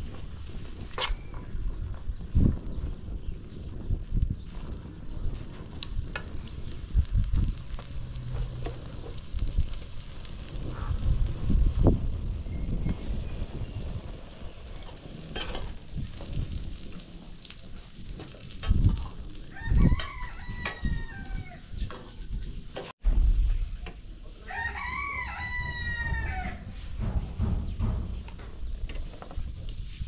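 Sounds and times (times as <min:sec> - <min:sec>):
steady low rumble: 0:01.6 - 0:17.6, 0:23.0 - 0:30.0
rooster crowing: 0:19.5 - 0:21.7, 0:24.4 - 0:26.8
low thumps: 0:23.0 - 0:24.3, 0:25.7 - 0:29.7.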